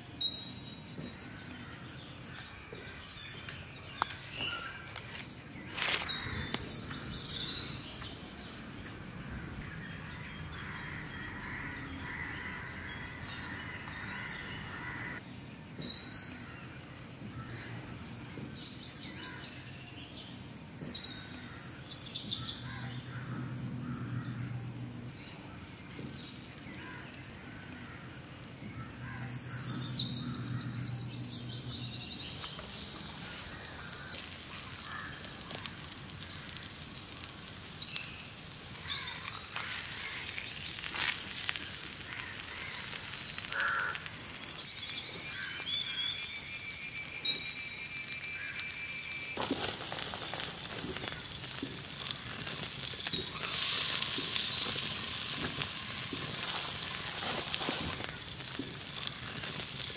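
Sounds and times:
insects trilling: 0.0s - 59.9s
bird chirps: 44.6s - 49.4s.

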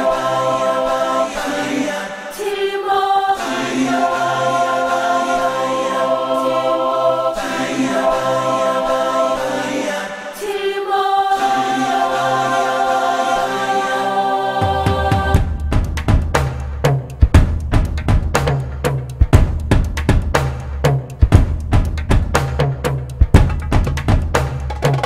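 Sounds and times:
choir singing held chords: 0.0s - 16.0s.

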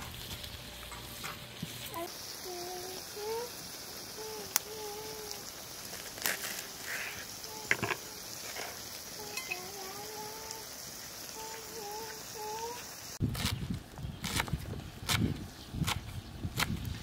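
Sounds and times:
liver and vegetables sizzling: 0.0s - 13.2s.

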